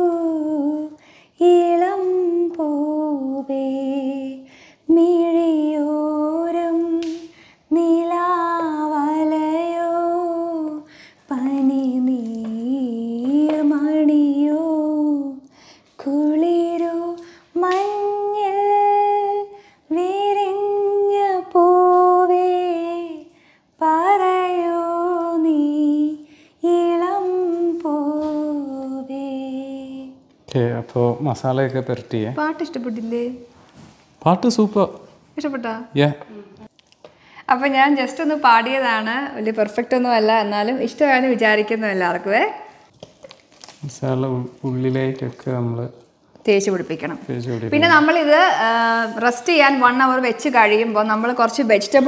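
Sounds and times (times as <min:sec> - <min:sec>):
woman singing unaccompanied: 0:00.0 - 0:30.4, 0:47.6 - 0:52.0.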